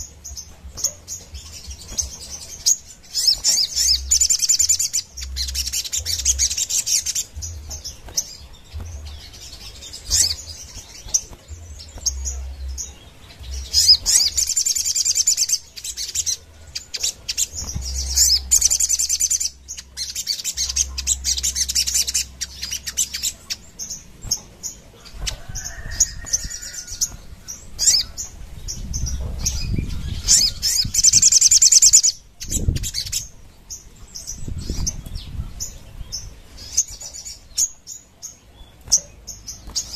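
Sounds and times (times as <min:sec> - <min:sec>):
low thumps: 0:07.3 - 0:14.5.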